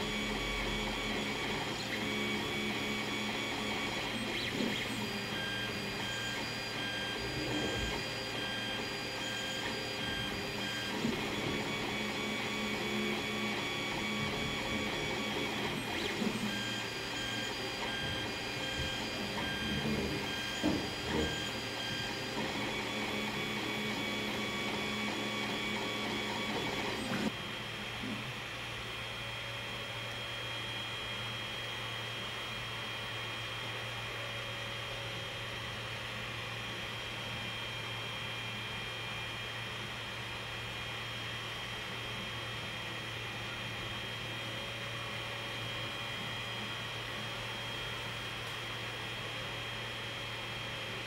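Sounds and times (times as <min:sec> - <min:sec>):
stepper motors whining: 0:00.0 - 0:27.3
fans humming: 0:00.0 - 0:28.3.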